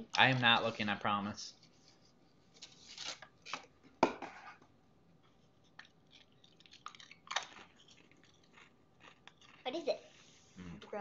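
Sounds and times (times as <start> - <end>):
potato crisp crunching: 5.8 - 9.8.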